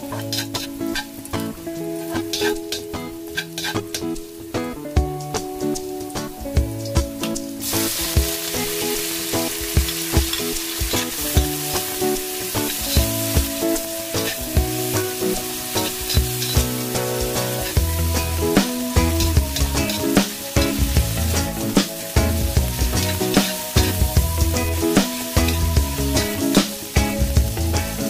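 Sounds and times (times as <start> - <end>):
background music with beat: 0.0 - 28.0
food sizzling in hot oil: 0.0 - 28.0
metal ladle scraping wok: 0.1 - 1.2, 2.0 - 4.0, 7.6 - 24.0.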